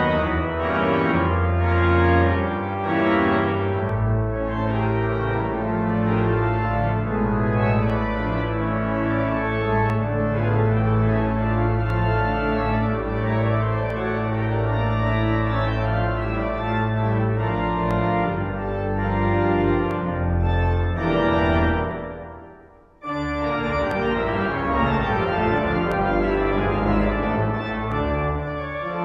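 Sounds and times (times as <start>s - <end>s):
organ playing sustained chords: 0.0s - 29.0s.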